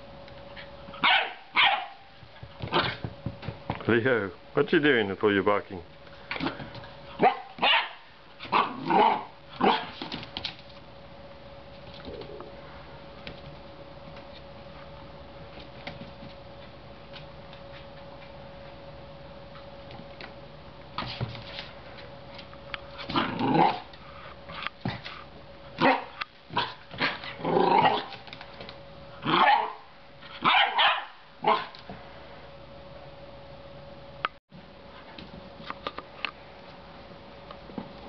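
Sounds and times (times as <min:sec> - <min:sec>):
faint steady hum: 0:00.0 - 0:38.0
puppy barking: 0:01.0 - 0:02.1, 0:07.2 - 0:10.0, 0:25.8 - 0:27.2, 0:29.2 - 0:31.7.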